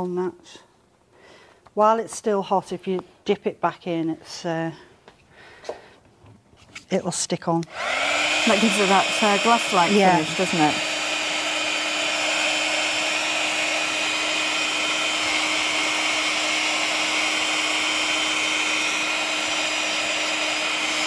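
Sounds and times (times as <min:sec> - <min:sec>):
heat gun fan whirring: 0:07.6 - 0:21.0.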